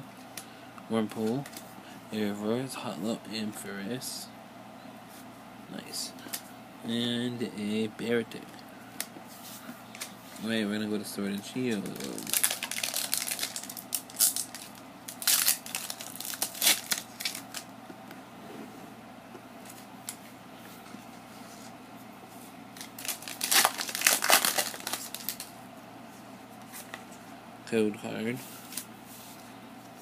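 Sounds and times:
foil wrapper crinkling: 11.7s - 17.7s, 22.8s - 25.5s.

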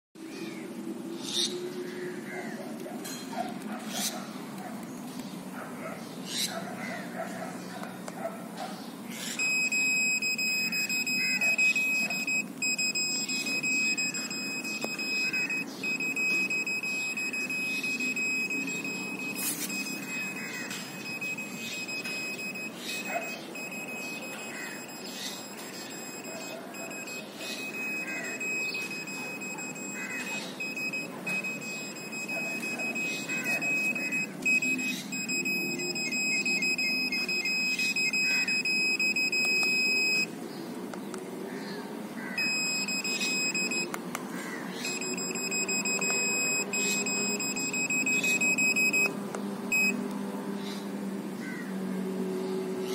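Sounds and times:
high-pitched beep tone: 9.4s - 40.3s, 42.4s - 44.0s, 44.8s - 50.0s
short beeps: 9.4s - 40.3s, 42.4s - 44.0s, 44.8s - 50.0s.

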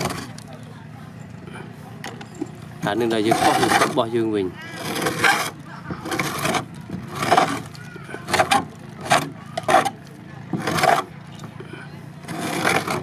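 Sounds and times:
scraper rasping on wooden planks: 0.0s - 0.4s, 2.8s - 11.2s, 12.1s - 13.0s.

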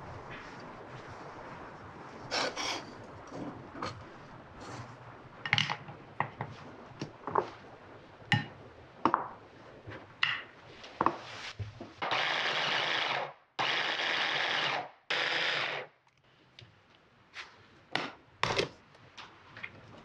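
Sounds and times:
food chopper motor whirring: 12.1s - 15.8s.

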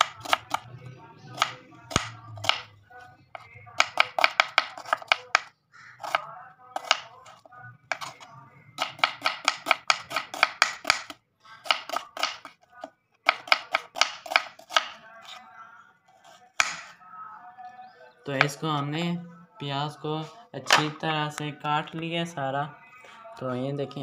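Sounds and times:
knife slicing onion on board: 3.8s - 6.2s, 6.8s - 8.2s, 8.8s - 12.6s, 13.3s - 15.0s.

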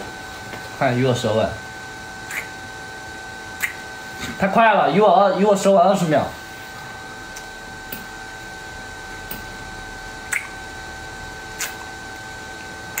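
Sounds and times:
wet kissing smacks: 2.3s - 2.6s, 3.6s - 3.8s, 10.3s - 10.6s, 11.6s - 11.9s.

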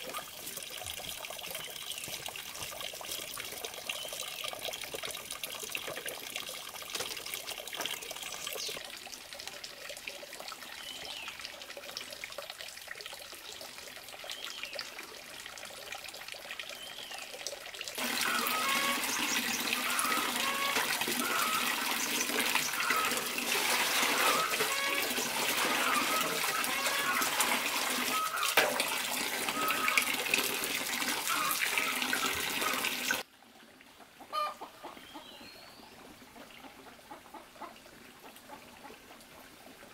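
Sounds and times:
water gurgling: 0.0s - 34.6s
water trickling: 0.0s - 34.9s
water pouring into metal basin: 15.4s - 33.2s.

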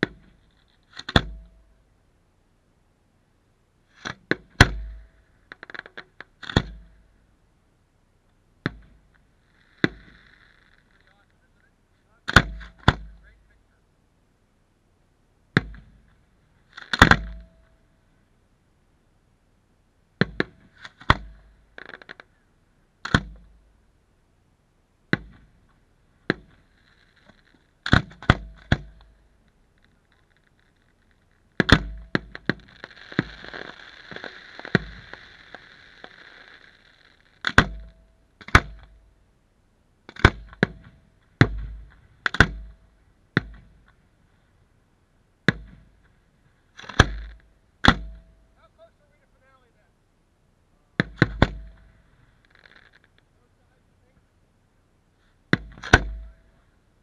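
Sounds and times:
continuous hiss: 0.0s - 57.0s
firework shells bursting: 4.0s - 7.1s, 8.6s - 11.4s, 12.3s - 13.5s, 25.1s - 39.1s, 45.5s - 49.3s, 51.0s - 53.4s.

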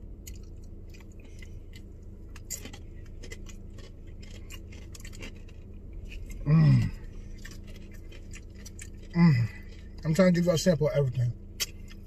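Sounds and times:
low steady hum: 0.0s - 12.0s
chewing crunchy chip: 0.2s - 10.6s.

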